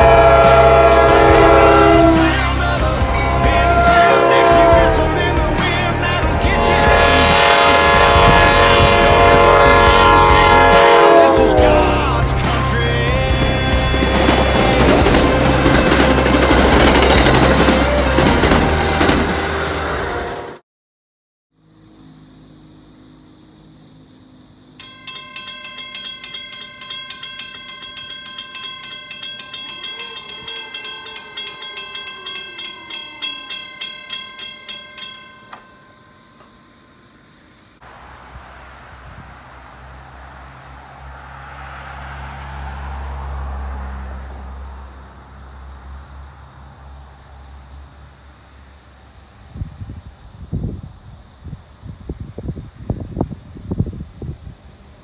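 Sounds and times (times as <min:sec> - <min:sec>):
crossing warning bell ringing: 0:00.0 - 0:19.3, 0:24.8 - 0:37.1
train air horn chord: 0:00.0 - 0:20.6, 0:28.5 - 0:35.7.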